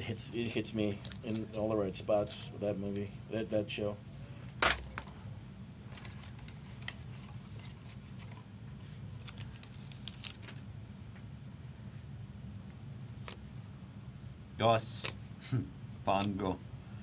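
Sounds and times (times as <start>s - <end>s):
steady low hum: 0.0s - 17.0s
cards snapping and rustling: 9.0s - 10.7s.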